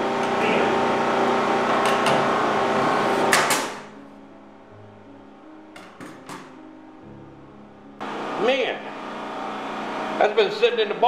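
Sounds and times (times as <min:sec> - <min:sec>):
air compressor humming: 0:00.0 - 0:04.1, 0:08.0 - 0:11.0.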